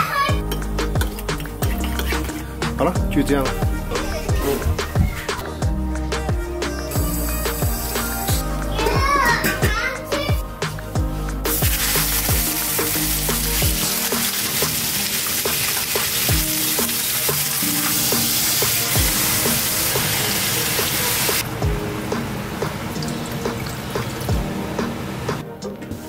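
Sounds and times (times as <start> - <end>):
fish sizzling in hot oil: 11.5 - 21.4.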